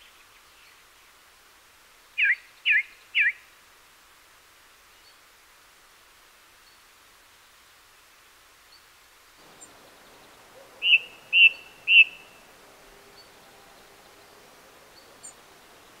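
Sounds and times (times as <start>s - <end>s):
songbird call notes: 2.2s - 3.5s, 8.7s - 16.0s.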